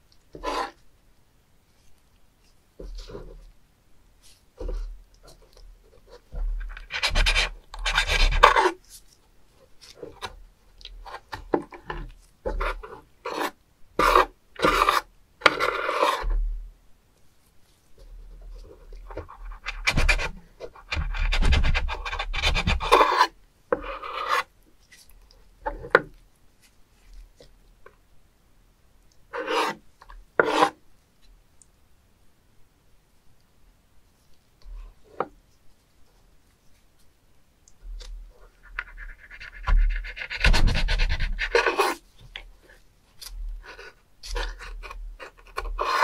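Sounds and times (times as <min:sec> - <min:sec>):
knife scraping cutting board: 0:00.4 - 0:00.8, 0:06.6 - 0:08.8, 0:12.5 - 0:16.4, 0:21.9 - 0:24.5, 0:29.3 - 0:29.8, 0:30.4 - 0:30.8, 0:38.7 - 0:42.0, 0:43.6 - 0:46.0.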